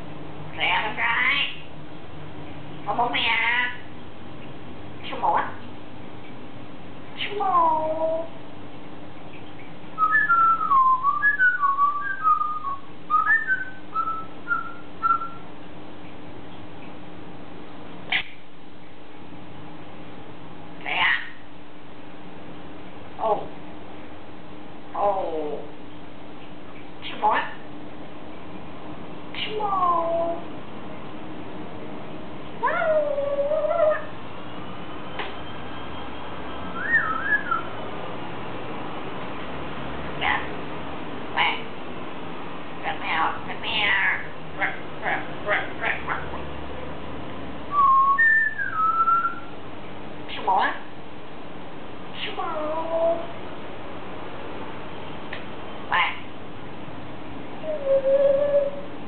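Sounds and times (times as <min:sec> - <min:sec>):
parrot calling: 0:00.5 - 0:01.7, 0:02.8 - 0:03.9, 0:05.0 - 0:05.6, 0:10.0 - 0:15.5, 0:18.1 - 0:18.4, 0:20.8 - 0:21.4, 0:29.3 - 0:30.5, 0:32.6 - 0:34.2, 0:36.7 - 0:37.8, 0:41.4 - 0:41.7, 0:42.8 - 0:46.5, 0:47.7 - 0:49.6, 0:50.3 - 0:50.9, 0:52.1 - 0:53.3, 0:55.9 - 0:56.3, 0:57.6 - 0:58.9
parrot whistling: 0:10.0 - 0:15.5, 0:32.6 - 0:34.1, 0:36.6 - 0:37.7, 0:47.7 - 0:49.5, 0:57.6 - 0:58.9.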